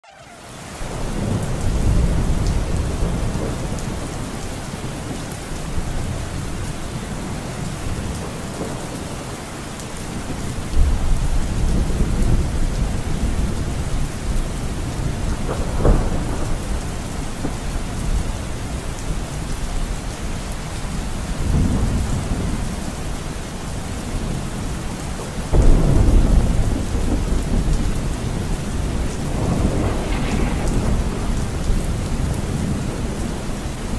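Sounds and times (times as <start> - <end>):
steady rain: 0.0 - 33.9
thunder rumbling: 0.1 - 9.4, 10.1 - 33.9.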